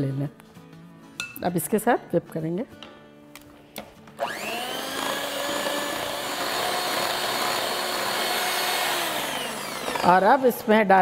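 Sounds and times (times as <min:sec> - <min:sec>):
electric hand mixer whirring: 0:04.2 - 0:11.0.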